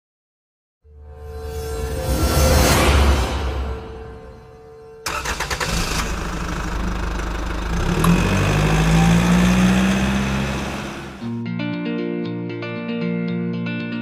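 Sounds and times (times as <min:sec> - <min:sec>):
car engine starting and revving: 0:05.0 - 0:11.3.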